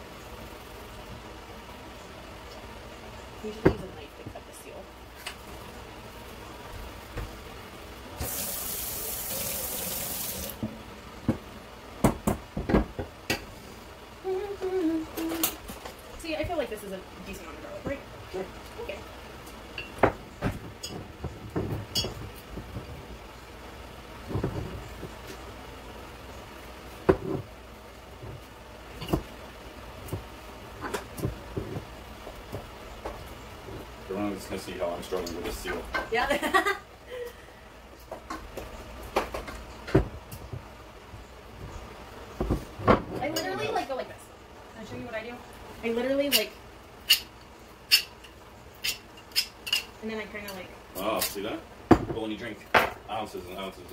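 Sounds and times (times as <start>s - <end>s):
steady low hum: 0.0s - 53.9s
kitchen tap running: 8.2s - 10.6s.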